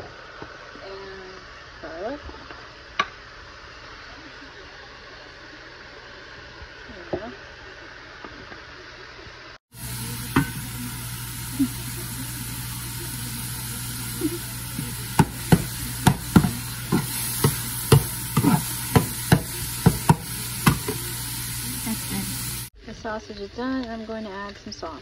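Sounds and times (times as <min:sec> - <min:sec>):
sausage sizzling in pan: 0:09.7 - 0:22.8
metal spatula knocking pan: 0:15.2 - 0:21.0.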